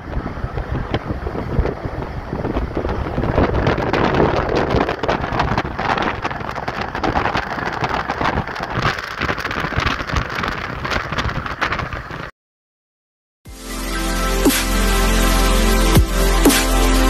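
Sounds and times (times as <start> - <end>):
car road and wind noise: 0.0 - 12.3.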